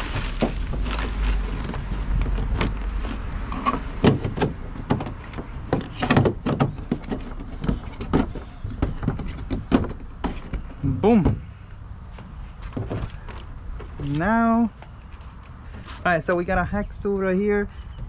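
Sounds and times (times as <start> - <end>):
hard plastic knocks and clicks: 3.5 - 11.4.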